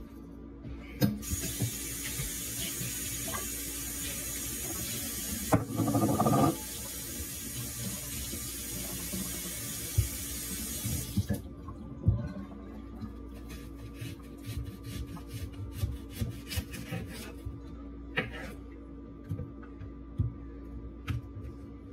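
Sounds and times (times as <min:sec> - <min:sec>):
water running into steel sink: 0:01.2 - 0:11.4.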